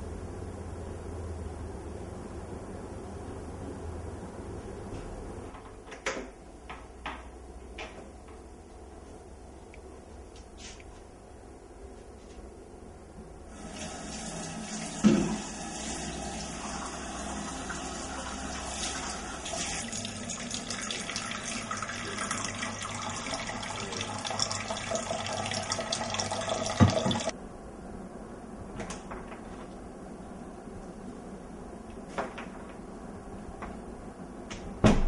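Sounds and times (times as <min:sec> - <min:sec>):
tap running into steel sink: 0:14.8 - 0:15.5, 0:26.6 - 0:27.3.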